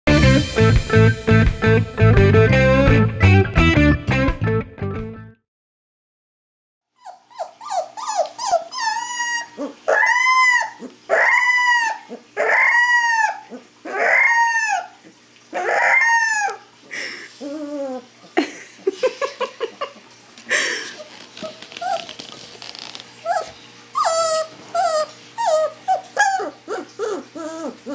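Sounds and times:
puppy whimpering and yipping: 7.0s - 16.7s, 17.4s - 18.2s, 21.0s - 27.9s
puppy howling: 7.0s - 16.8s, 17.4s - 18.2s, 21.4s - 22.3s, 23.2s - 27.9s
puppy yelping: 7.0s - 16.8s, 17.4s - 18.2s, 21.0s - 27.9s.

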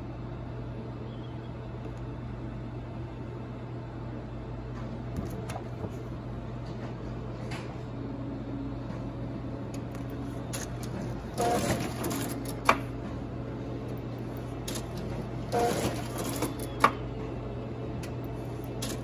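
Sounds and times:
printer humming and whirring: 0.0s - 19.0s
paper feeding burst: 10.3s - 12.7s, 14.6s - 16.7s.

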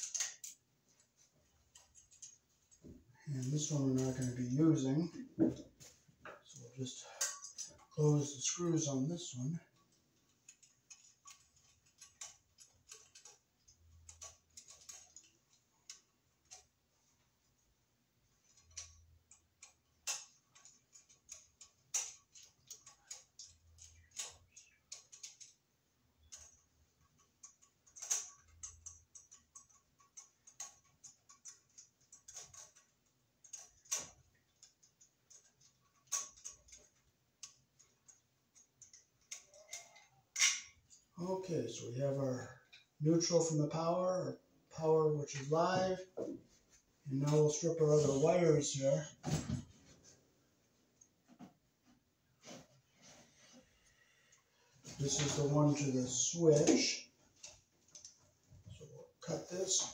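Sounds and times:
screwdriver clicking on metal screws: 0.0s - 0.6s, 10.3s - 16.7s, 18.4s - 25.6s, 26.2s - 40.7s.

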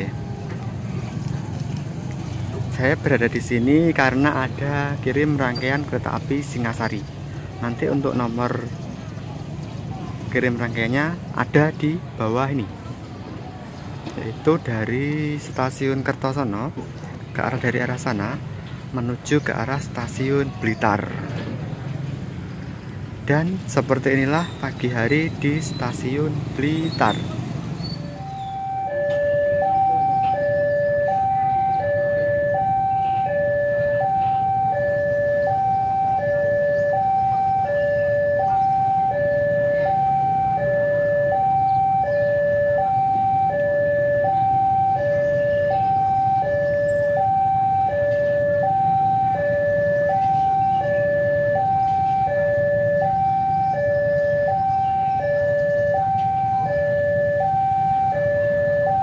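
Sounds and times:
level-crossing two-tone alarm: 28.0s - 59.0s.

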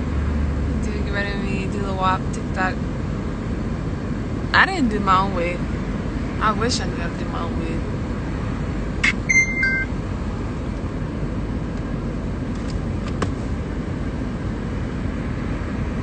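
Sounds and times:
two-tone descending electronic beep: 9.0s - 9.9s.

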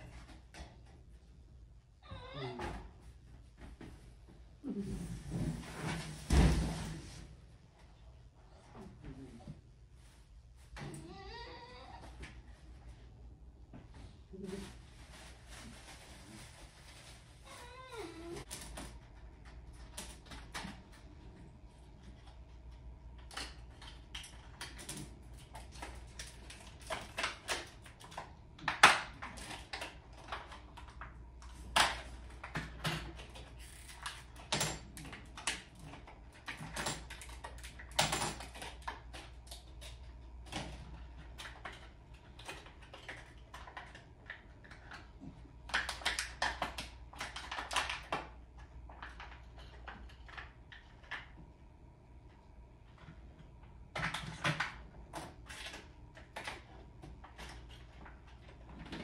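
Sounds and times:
objects handled clicking and rattling: 21.9s - 51.4s.

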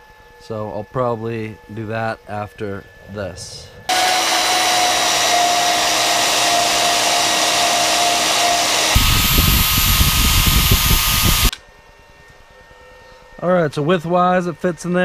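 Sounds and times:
angle grinder grinding metal: 3.9s - 11.5s
band saw cutting steel: 3.9s - 11.5s.

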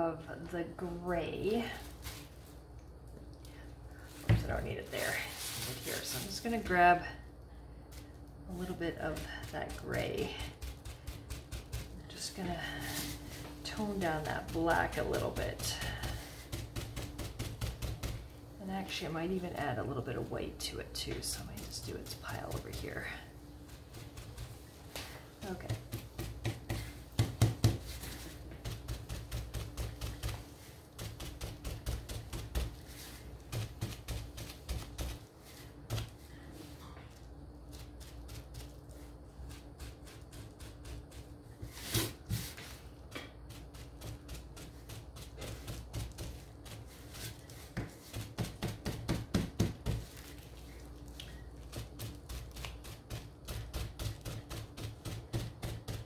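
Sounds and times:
bubble wrap tapping on wood: 23.8s - 36.2s, 42.3s - 56.0s.

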